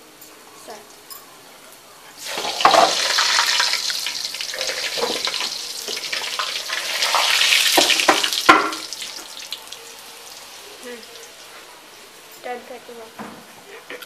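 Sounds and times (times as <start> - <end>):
skimmer and tongs knocking pan: 2.2 - 9.6
food deep-frying in hot oil: 2.2 - 11.6.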